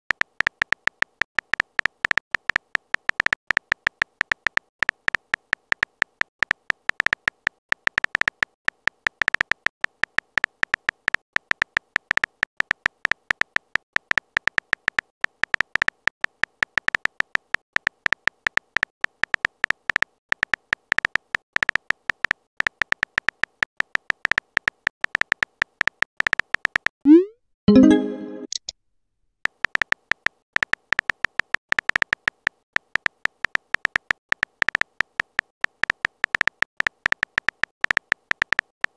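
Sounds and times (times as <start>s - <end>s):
phone keyboard clicks: 29.5s - 38.9s.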